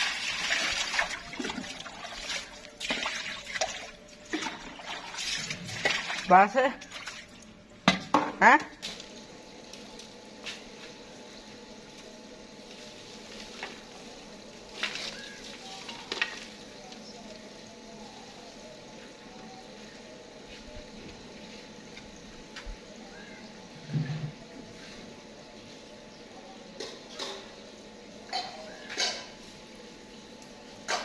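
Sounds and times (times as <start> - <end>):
stove fire hissing: 8.8 - 28.3, 29.1 - 31.0.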